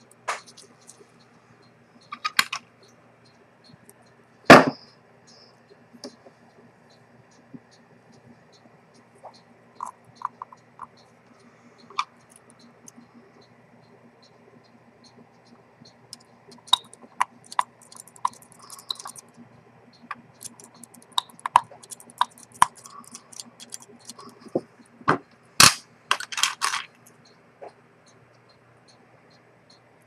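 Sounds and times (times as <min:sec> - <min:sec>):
metal tools clicking on watch: 0:16.1 - 0:19.4, 0:20.0 - 0:24.6.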